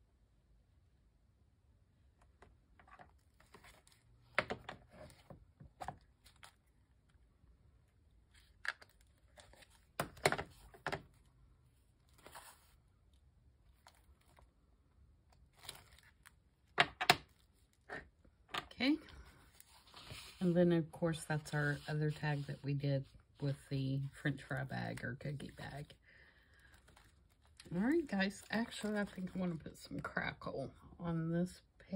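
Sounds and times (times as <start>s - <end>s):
paper rustling: 12.0s - 12.8s, 19.2s - 20.6s.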